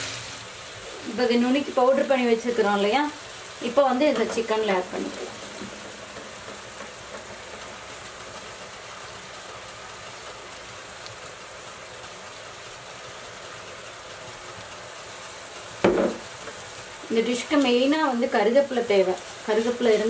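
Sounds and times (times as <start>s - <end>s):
chicken sizzling in oil: 0.0s - 20.0s.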